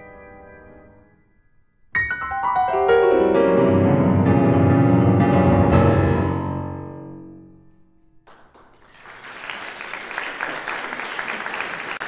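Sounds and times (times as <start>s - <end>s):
grand piano chord: 0.0s - 8.2s
audience applause: 8.3s - 12.0s.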